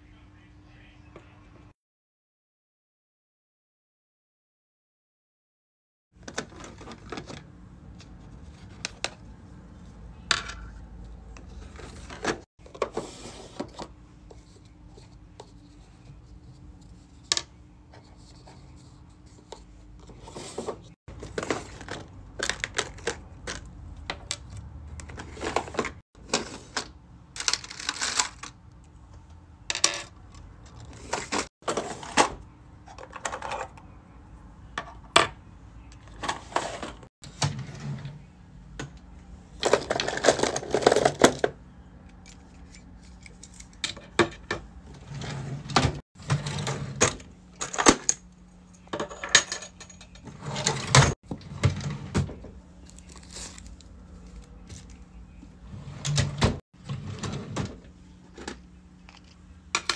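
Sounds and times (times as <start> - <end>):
plastic drawers sliding: 11.6 - 13.9, 20.1 - 23.6, 25.0 - 26.8, 30.9 - 32.4, 36.2 - 38.2, 39.6 - 41.4, 44.5 - 47.2, 50.3 - 52.6, 55.7 - 58.6
keychains clinking: 49.1 - 50.3.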